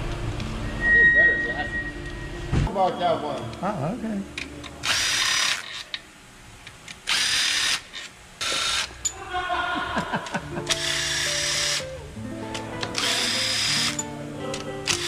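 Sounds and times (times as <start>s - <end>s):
background music: 10.0s - 15.0s
power driver spinning bolts: 12.8s - 15.0s.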